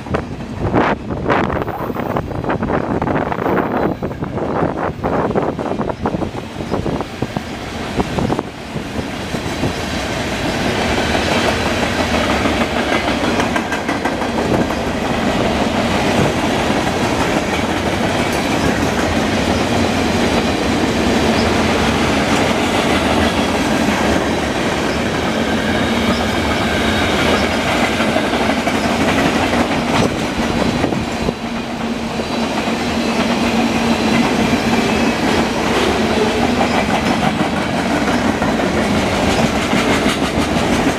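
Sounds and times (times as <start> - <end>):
freight train wheels clattering on rails: 0.0 - 40.9.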